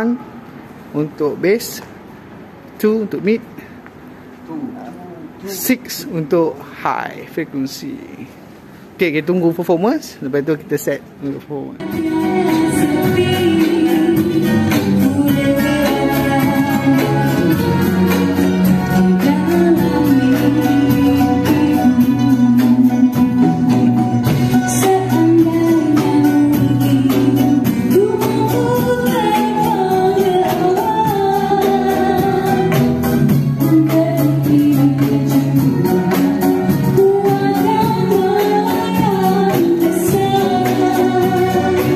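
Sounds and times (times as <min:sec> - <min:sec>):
woman singing: 0:11.8 - 0:41.9.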